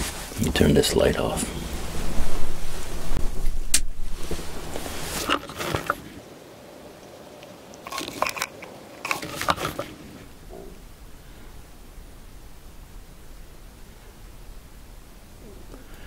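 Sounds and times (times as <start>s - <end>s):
crackling crunchy clicks: 2.8s - 6.2s, 7.0s - 10.0s.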